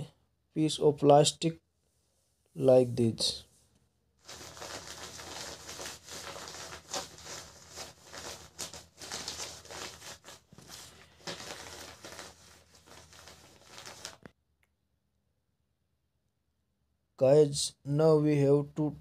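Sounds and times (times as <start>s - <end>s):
rustling and crinkling handling noise: 4.2s - 14.3s.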